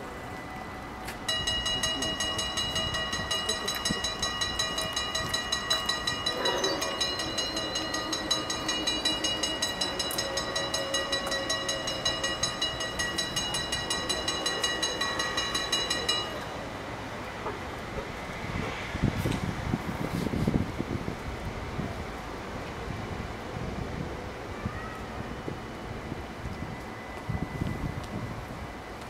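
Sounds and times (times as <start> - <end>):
mechanical crossing bells ringing: 0.3 - 16.8.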